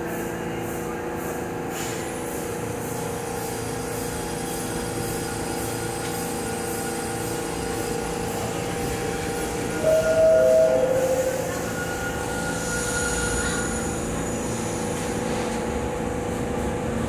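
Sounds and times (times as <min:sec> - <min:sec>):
subway train humming: 0:00.0 - 0:17.0
two-note door chime: 0:09.8 - 0:12.0.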